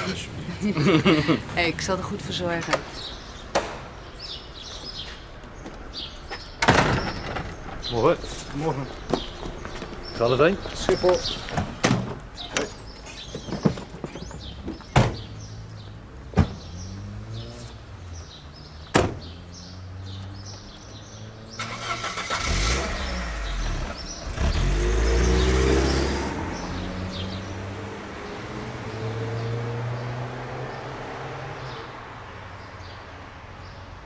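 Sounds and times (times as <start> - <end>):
birds chirping: 0.0 - 34.0
sharp knocks: 3.5 - 3.9
car engine accelerating: 21.5 - 31.8.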